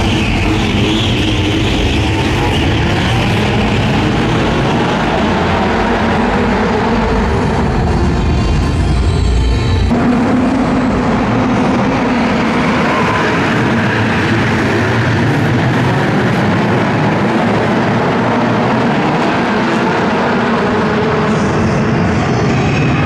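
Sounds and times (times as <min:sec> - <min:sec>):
engines at high revs: 0:00.0 - 0:08.4.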